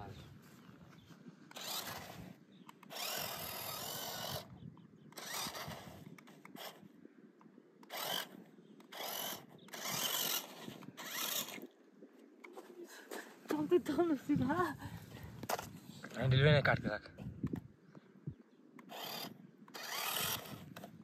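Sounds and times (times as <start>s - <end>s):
toy truck motor whirring: 1.5s - 11.8s, 18.8s - 21.0s.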